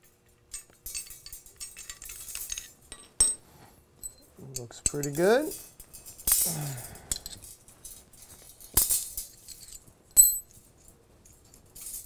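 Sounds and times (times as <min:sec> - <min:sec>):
ringing metallic clink: 0:04.0 - 0:07.6, 0:08.8 - 0:10.6.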